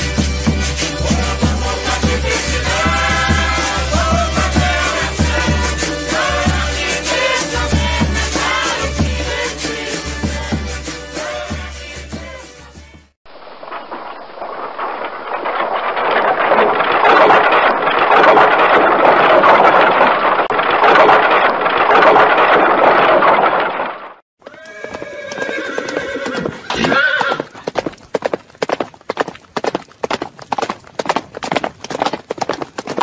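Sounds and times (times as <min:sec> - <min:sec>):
clatter of many horses: 0:15.4 - 0:33.0
horse whinnying: 0:24.4 - 0:27.7
hoofbeats on pavement: 0:24.4 - 0:33.0.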